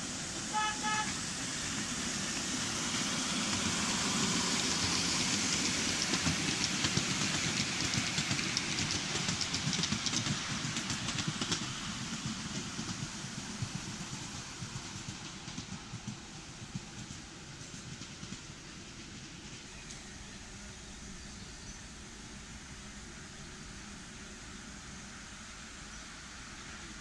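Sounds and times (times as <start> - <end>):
train wheels rumbling on track: 0.0 - 27.0
wheels clicking over rail joints: 2.0 - 20.1.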